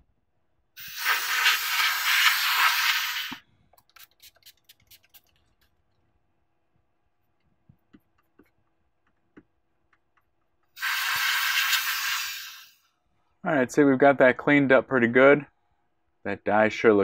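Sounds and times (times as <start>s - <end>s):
compressed air hissing: 0.8s - 3.4s, 10.8s - 12.9s
faint ticks and taps: 7.4s - 10.6s.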